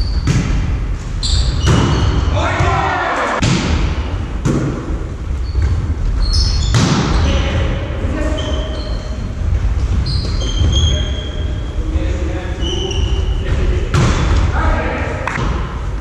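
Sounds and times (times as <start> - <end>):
volleyball slaps: 0.2 - 0.8, 1.6 - 5.0, 6.6 - 7.2, 13.9 - 14.6, 15.2 - 15.8
sneaker squeaks on wooden floor: 1.2 - 2.4, 5.4 - 7.6, 8.2 - 11.8, 12.5 - 13.7.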